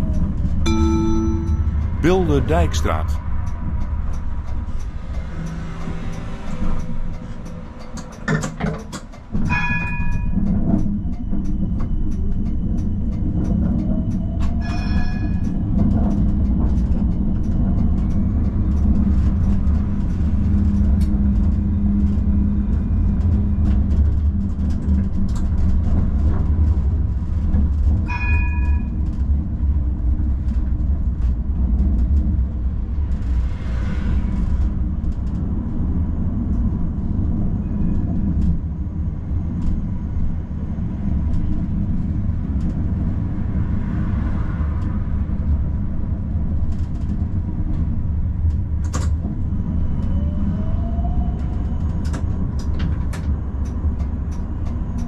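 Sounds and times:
tram wheels and motors rumbling: 0.0 - 2.0, 2.9 - 55.0
short ringing tones: 0.7 - 2.0.

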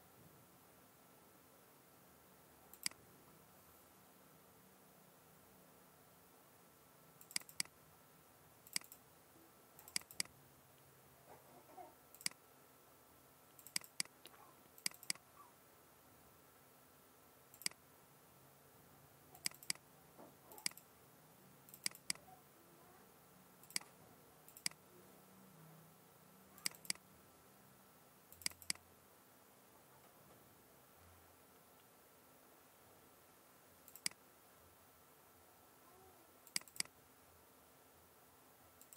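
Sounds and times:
faint steady hum: 0.0 - 38.9
mouse button clicking: 2.8 - 3.0, 7.2 - 7.7, 9.8 - 10.3, 13.6 - 15.2, 19.4 - 19.8, 20.6 - 20.8, 23.6 - 23.9, 26.6 - 27.0, 33.9 - 34.2, 36.5 - 36.9.

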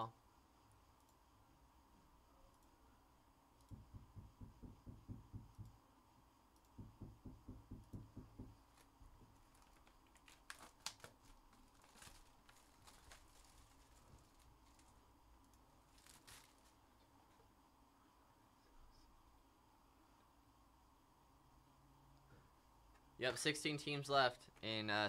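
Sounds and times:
cardboard and wrap tearing: 8.8 - 14.9, 15.9 - 16.8.

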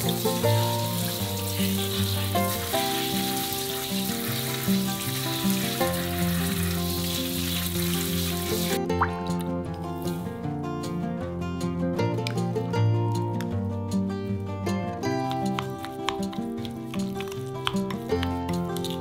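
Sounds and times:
tap water running: 0.0 - 8.8
background music: 0.0 - 19.0
hands rubbing chicken: 15.3 - 19.0.

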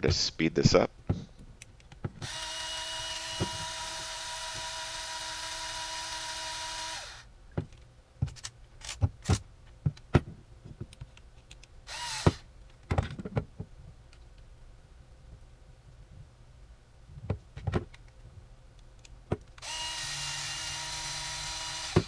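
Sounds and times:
electric screwdriver running: 2.2 - 7.3, 11.9 - 12.4, 19.6 - 22.0.

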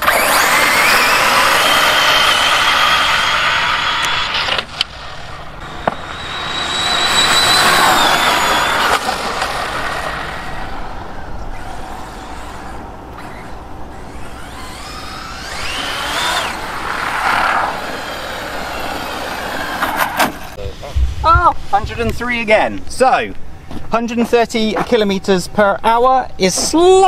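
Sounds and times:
electric motor whine: 0.0 - 10.4, 11.6 - 17.1, 17.7 - 19.8.

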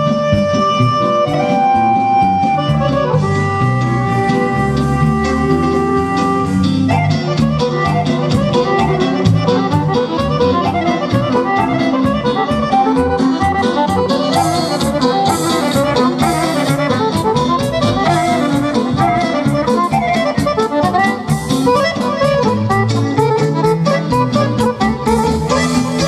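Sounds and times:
brass band playing dance music: 0.0 - 26.0.

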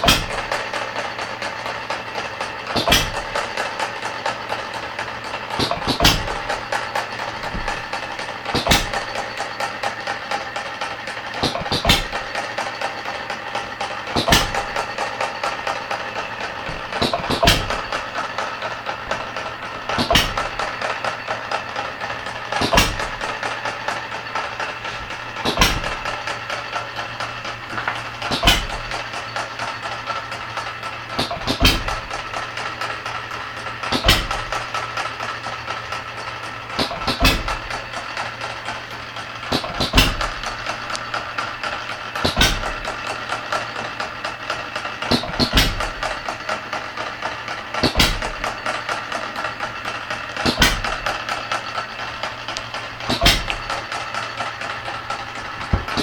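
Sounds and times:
engine flywheel clicking: 0.0 - 56.0
engine firing bang: 14.1 - 30.0, 31.1 - 32.6, 39.4 - 43.1, 47.8 - 48.7, 49.6 - 52.0, 52.7 - 56.0.

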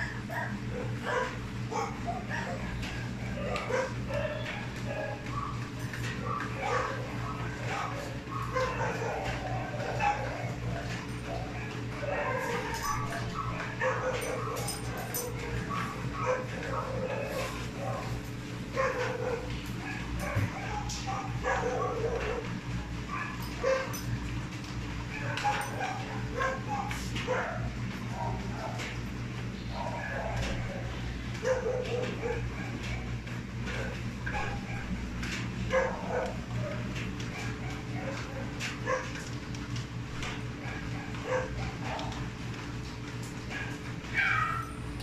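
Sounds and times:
steady low hum: 0.0 - 45.0
dog whining and yipping: 7.7 - 18.0, 43.5 - 44.9
puppy whimpering and yipping: 44.1 - 44.8.

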